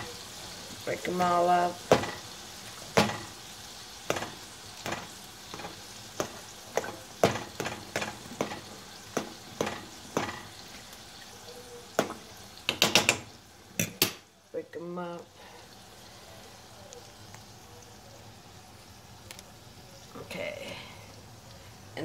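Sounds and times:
chicken frying hiss: 0.0s - 22.0s.

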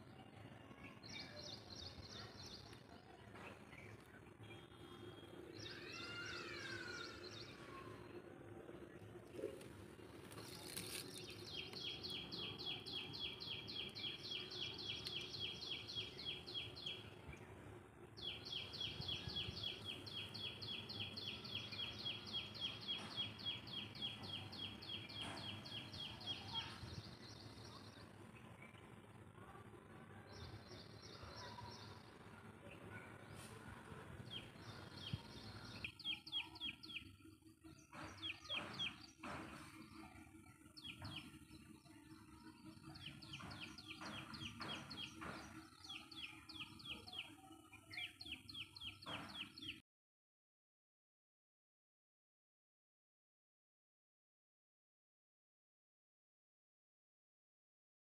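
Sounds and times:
faint outdoor background noise: 0.0s - 49.8s
bird chirping: 0.8s - 7.9s, 10.3s - 17.1s, 18.2s - 28.9s, 34.2s - 49.8s.

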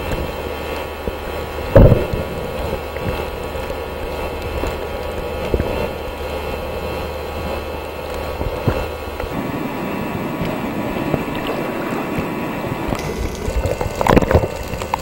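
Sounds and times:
muffled underwater rumble and hiss: 0.0s - 15.0s
sharp underwater thump: 1.7s - 2.8s.

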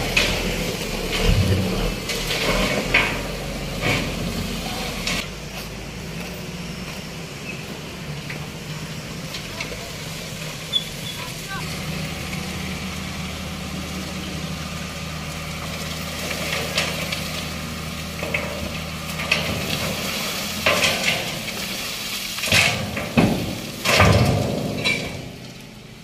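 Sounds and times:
loud bumps and scrapes: 0.0s - 5.2s, 15.6s - 25.6s
truck engine idling: 0.0s - 26.0s.

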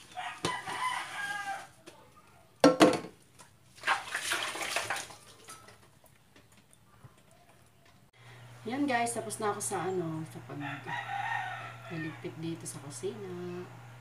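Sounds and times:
dishes clattering: 2.6s - 3.2s
running splashing water: 3.7s - 6.2s.

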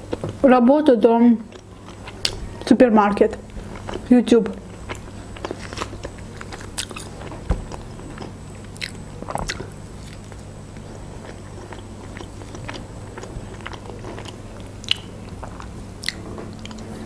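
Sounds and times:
chewing chicken: 3.4s - 17.0s.

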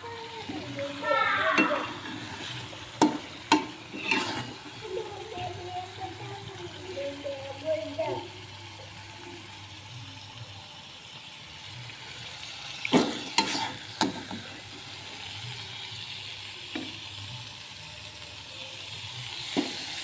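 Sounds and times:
sauce sizzling in a wok: 0.0s - 20.0s
spatula scraping and knocking: 2.4s - 4.5s.

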